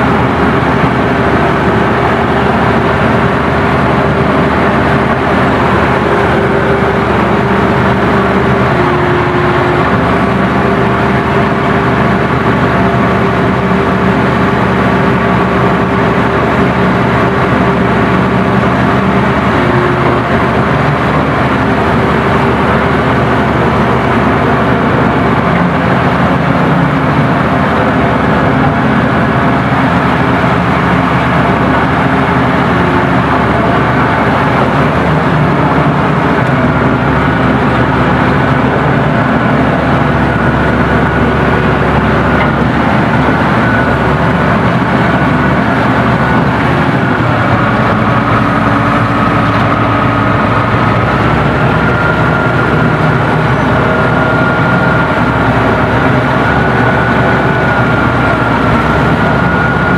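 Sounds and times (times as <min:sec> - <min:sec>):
bulldozer diesel engine running: 0:00.0 - 0:59.9
thin mechanical whine: 0:12.2 - 0:59.9.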